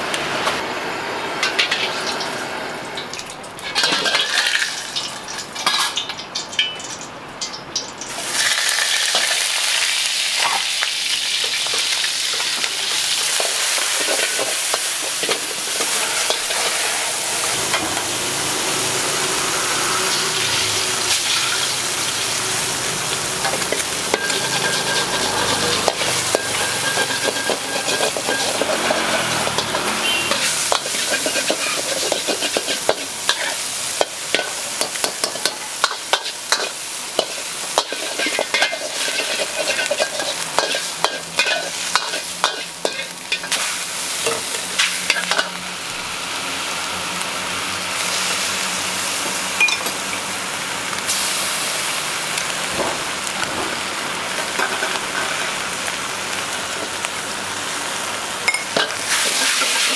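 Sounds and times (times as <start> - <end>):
food sizzling in hot oil: 0.0 - 59.9
metal spatula scraping wok: 3.6 - 6.8, 11.4 - 22.6, 23.2 - 45.6, 58.5 - 59.9.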